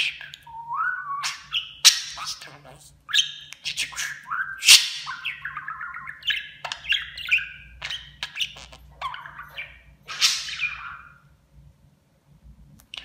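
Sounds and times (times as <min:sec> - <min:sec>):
budgerigar chattering: 0:01.3 - 0:11.2.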